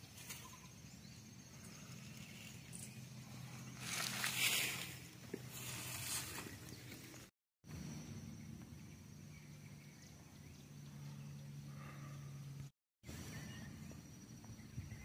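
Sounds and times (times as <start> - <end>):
steady low hum: 0.0 - 15.0
rustling hiss: 3.5 - 7.3.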